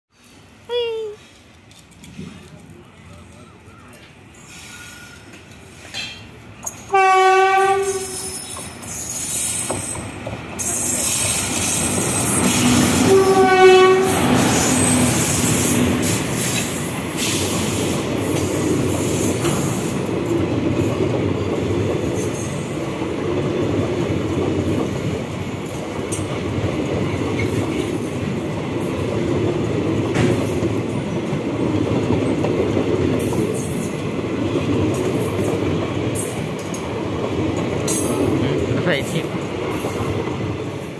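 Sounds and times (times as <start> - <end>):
train wheels clattering on rails: 1.3 - 40.9
train horn blasts: 6.9 - 8.4, 12.6 - 14.8.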